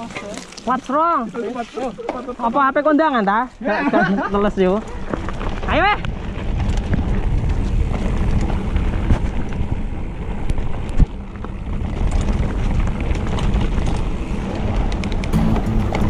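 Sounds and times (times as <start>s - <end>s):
bike clicks and rattles: 0.0s - 1.2s, 4.4s - 16.0s
bike tyres rolling on dirt: 0.0s - 16.0s
wind buffeting microphone: 4.2s - 16.0s.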